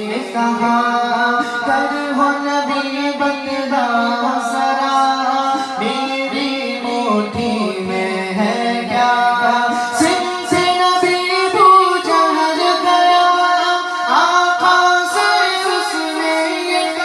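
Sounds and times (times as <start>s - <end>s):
man singing devotional song: 0.0s - 17.0s.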